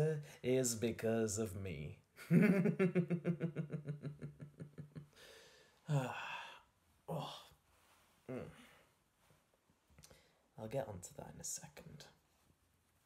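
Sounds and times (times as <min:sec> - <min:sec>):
man laughing: 0:02.2 - 0:05.1
breathy exhalations: 0:05.1 - 0:07.6.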